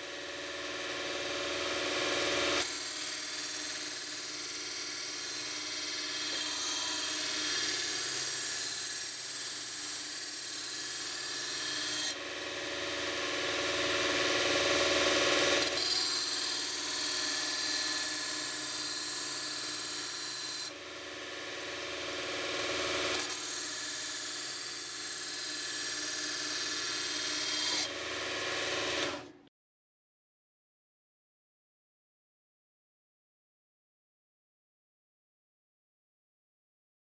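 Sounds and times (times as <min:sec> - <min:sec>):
belt grinder motor running: 0:00.0 - 0:29.4.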